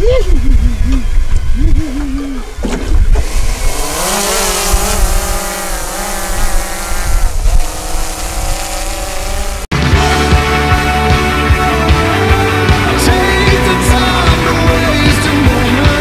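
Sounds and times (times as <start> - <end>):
drone propellers whining: 0.0 - 9.7.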